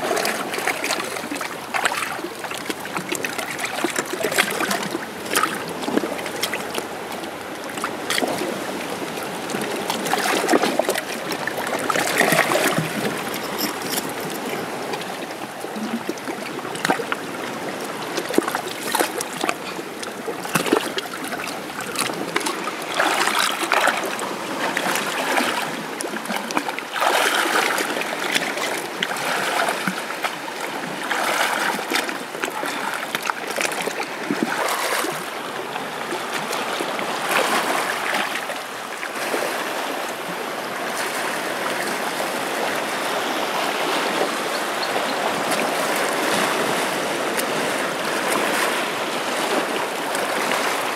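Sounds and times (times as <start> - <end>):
person wading through water: 0.0 - 50.9
seawater lapping around rocks: 0.0 - 50.9.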